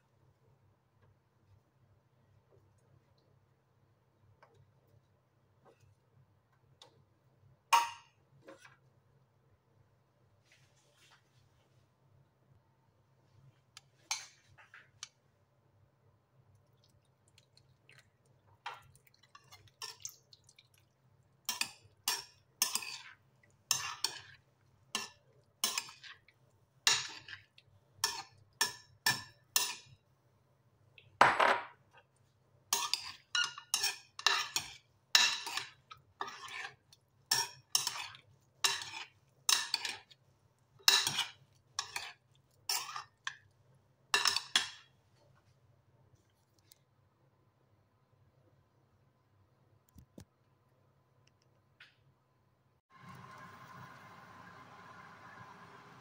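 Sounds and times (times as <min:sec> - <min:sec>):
metal spoons scraping a ceramic bowl: 0:21.5 - 0:26.2, 0:26.9 - 0:30.0, 0:32.7 - 0:40.2, 0:40.8 - 0:43.3, 0:44.2 - 0:44.8.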